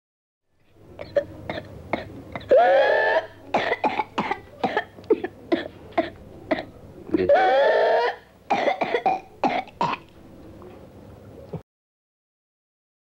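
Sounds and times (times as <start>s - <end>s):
child coughing: 1.0s - 10.1s.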